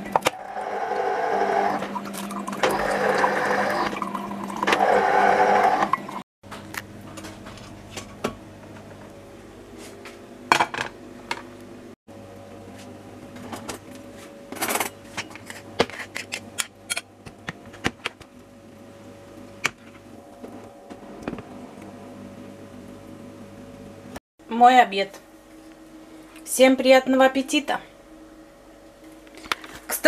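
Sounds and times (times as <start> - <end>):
steady low hum: 6.1 - 30.0.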